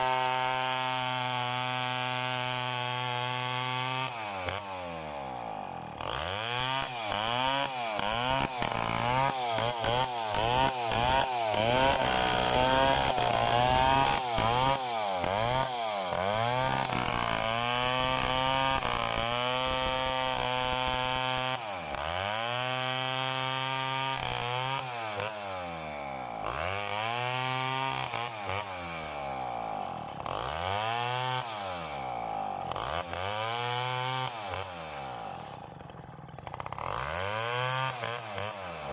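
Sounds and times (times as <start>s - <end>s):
chainsaw cutting log: 0.0s - 38.9s.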